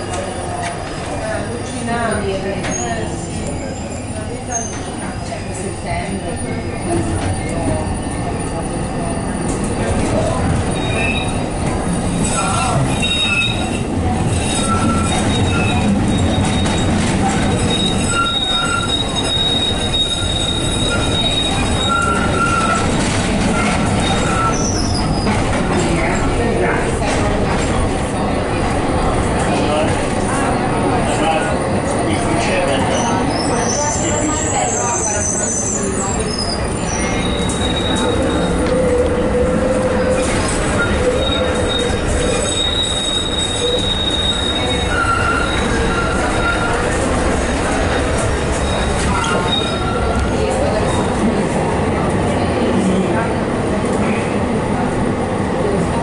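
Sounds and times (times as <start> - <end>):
tram wheels rumbling on rail: 0.0 - 56.0
high wheel squeal: 10.6 - 25.4, 32.7 - 51.1
lower wheel squeals: 10.6 - 25.5, 32.7 - 51.1.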